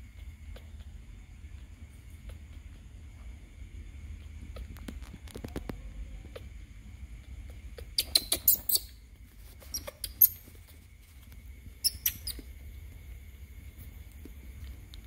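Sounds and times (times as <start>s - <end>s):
young animal squeaking: 7.3s - 10.6s, 11.8s - 12.6s.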